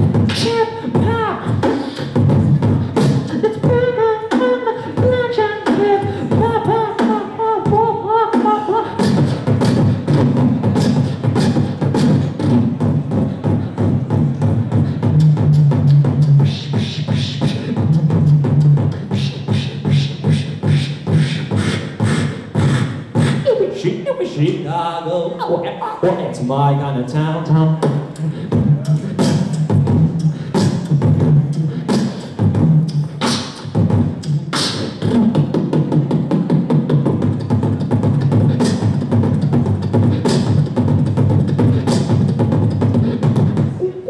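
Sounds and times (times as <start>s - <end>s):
beatboxing beat: 0.0s - 44.0s
hummed melody: 37.0s - 44.0s.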